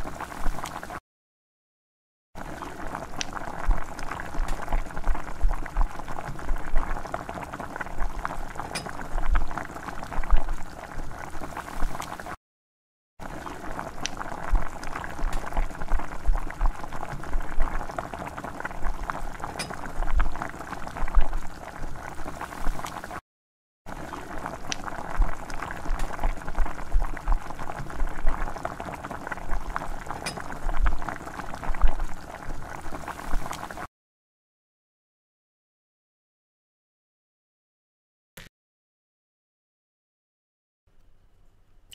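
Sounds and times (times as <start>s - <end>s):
liquid bubbling at a boil: 0.0s - 1.0s, 2.4s - 12.4s, 13.2s - 23.2s, 23.9s - 33.9s.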